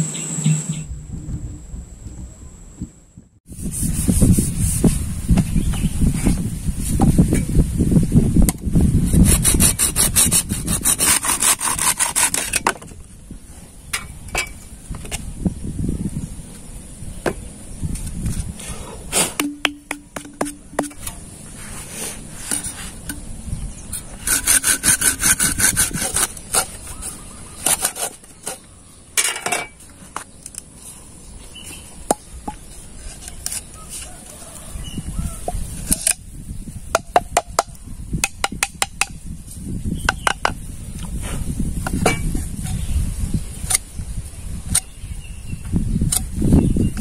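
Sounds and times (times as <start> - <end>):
bamboo being sawn: 9.0 - 12.8, 20.2 - 23.2, 24.0 - 28.7, 32.6 - 34.7.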